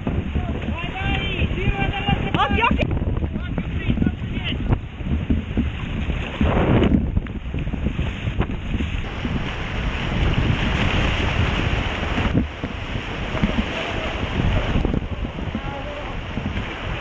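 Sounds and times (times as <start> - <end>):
whitewater river rushing: 0.0 - 4.6, 9.0 - 17.0
paddle strokes slapping water: 0.0 - 17.0
wind buffeting microphone: 0.0 - 17.0.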